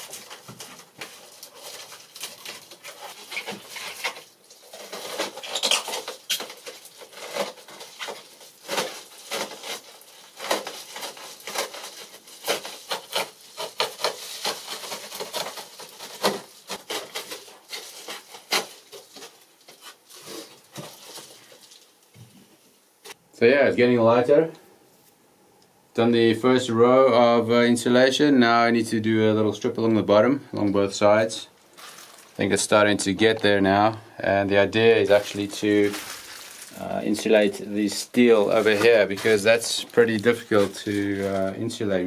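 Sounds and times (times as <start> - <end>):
foil insulation crinkling: 0.0 - 22.2, 31.0 - 42.0.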